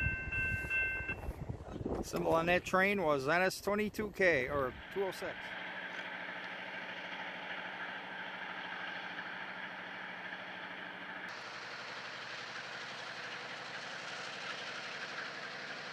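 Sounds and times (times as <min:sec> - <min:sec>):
diesel locomotive idling: 0:03.8 - 0:15.9.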